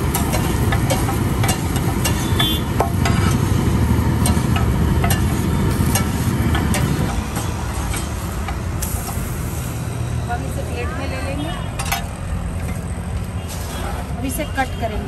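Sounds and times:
metal spatula scraping on griddle: 0.0 - 9.6
light sizzle: 0.0 - 10.5
road traffic rumble: 0.0 - 15.0.

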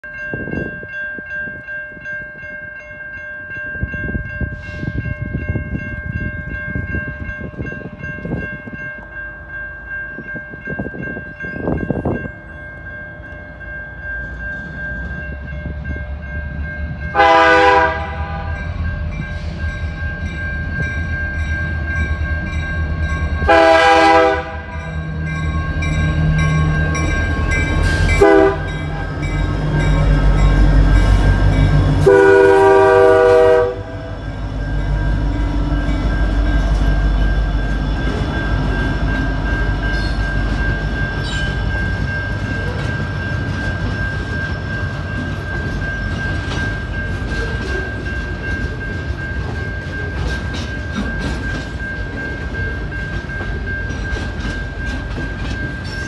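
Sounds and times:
level-crossing warning bell: 0.0 - 56.0
locomotive engine rumble: 6.0 - 56.0
locomotive horn blasts: 17.1 - 18.7, 23.5 - 24.8, 28.2 - 28.9, 31.9 - 34.2.

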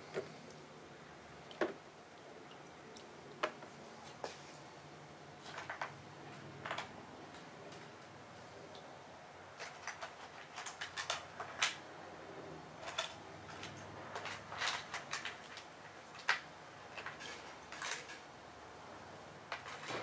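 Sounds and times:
small parts and tools clinking: 9.6 - 11.8, 12.8 - 18.3, 19.4 - 20.0.

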